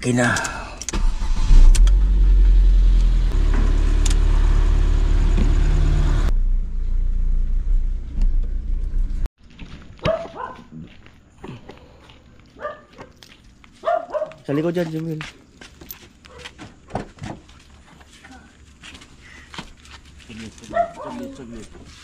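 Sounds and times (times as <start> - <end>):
car engine idling: 1.0 - 9.3
dog barking: 10.0 - 10.7, 12.6 - 13.2, 13.8 - 14.5, 16.3 - 16.6, 20.7 - 21.4.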